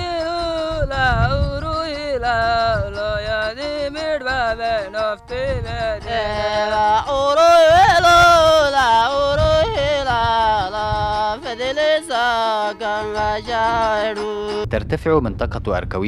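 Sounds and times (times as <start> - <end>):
plucked lyre: 0.0 - 14.7
man singing folk melody: 0.0 - 14.8.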